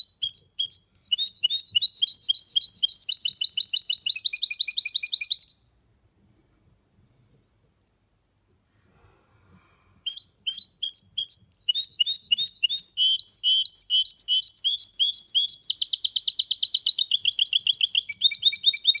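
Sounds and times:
bird chirps: 0.0s - 5.8s, 10.0s - 19.0s.

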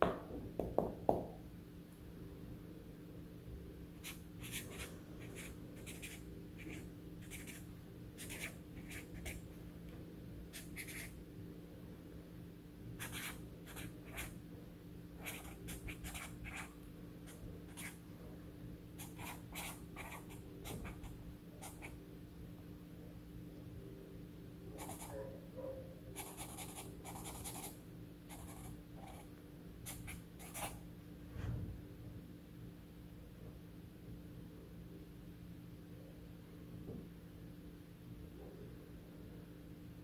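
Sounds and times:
low steady hum: 0.0s - 40.0s
marker scratching on paper: 4.0s - 9.4s, 10.5s - 11.2s, 13.0s - 14.4s, 15.2s - 18.0s, 19.0s - 22.0s, 24.8s - 25.2s, 26.2s - 29.3s, 29.9s - 30.8s.

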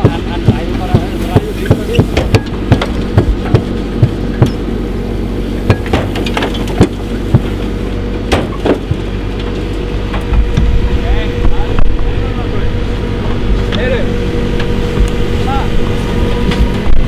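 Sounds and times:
sharp knocks and clanks: 0.0s - 4.6s, 5.7s - 7.6s, 8.3s - 10.8s
backhoe engine running: 0.0s - 17.0s.

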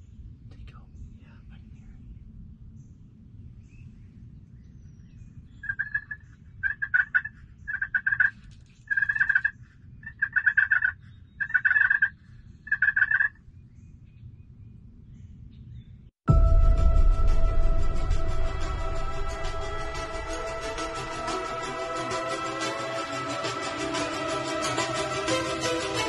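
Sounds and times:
harsh turkey call blasts: 5.6s - 8.3s, 8.9s - 12.1s, 12.7s - 13.3s.

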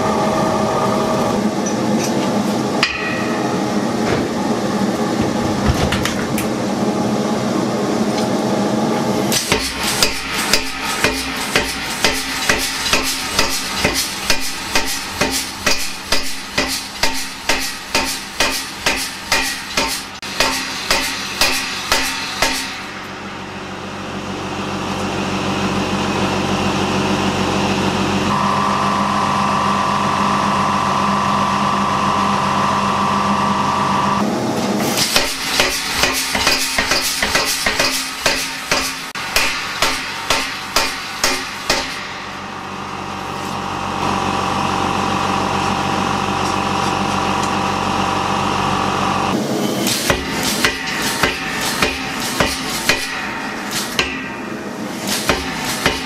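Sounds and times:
mechanical hum: 0.0s - 56.0s
power hammer striking steel: 2.8s - 4.4s, 9.3s - 23.2s, 35.0s - 42.6s, 49.8s - 56.0s
high steady whine: 20.0s - 34.5s.

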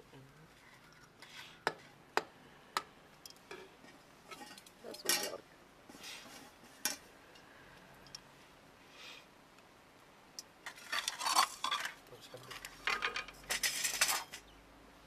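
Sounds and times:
metal plates clinking: 4.3s - 5.4s, 10.7s - 14.4s
plate scraping: 10.6s - 14.4s.

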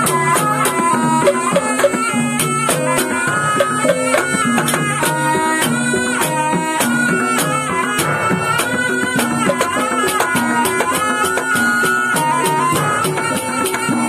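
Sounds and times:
drum strokes: 0.0s - 14.0s
shawm reedy melody: 0.0s - 14.0s.

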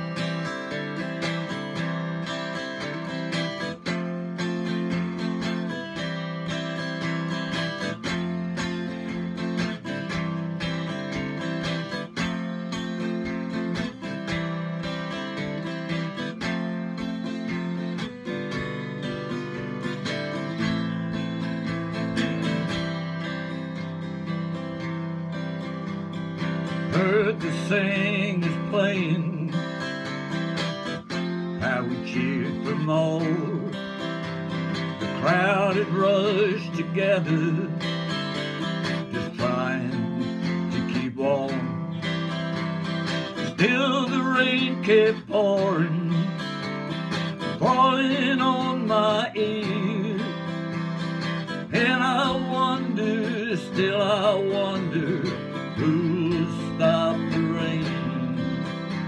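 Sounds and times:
strummed acoustic guitar: 0.0s - 59.0s
man singing: 26.4s - 30.4s, 31.5s - 59.0s.

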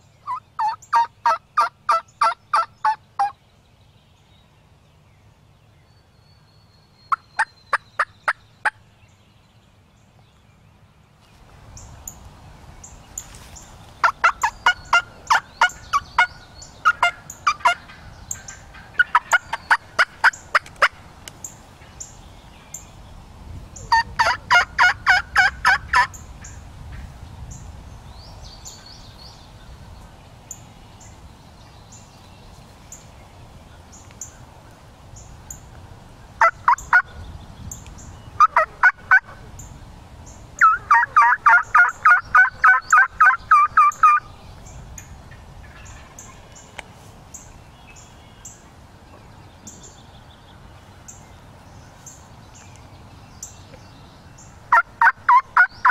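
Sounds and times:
small birds chirping: 0.0s - 24.5s, 26.0s - 55.9s
wild turkey calls: 0.2s - 3.4s, 14.0s - 21.0s, 23.8s - 26.5s, 36.4s - 37.1s, 38.4s - 39.7s, 40.6s - 44.3s, 54.7s - 55.9s.

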